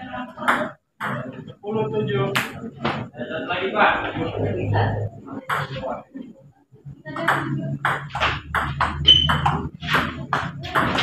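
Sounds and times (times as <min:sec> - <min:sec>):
ping-pong ball bouncing on table: 0:07.2 - 0:11.0.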